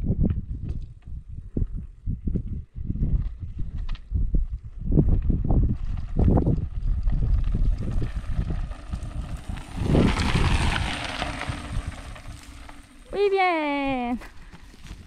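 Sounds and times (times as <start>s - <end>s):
wind buffeting microphone: 0.0s - 15.0s
bike tyres crunching on gravel: 5.2s - 15.0s.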